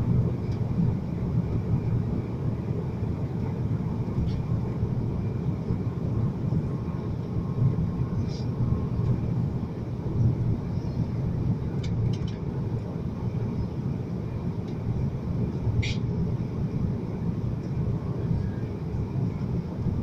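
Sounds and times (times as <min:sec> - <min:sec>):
airplane cabin engine rumble: 0:00.0 - 0:20.0.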